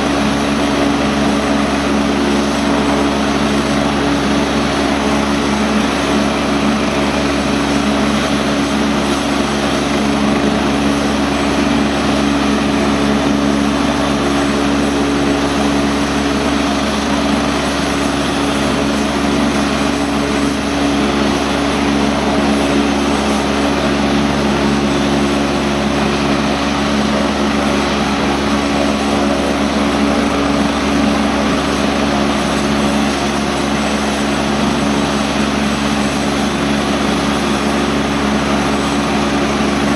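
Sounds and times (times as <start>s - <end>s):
helicopter turbine whine: 0.0s - 39.9s.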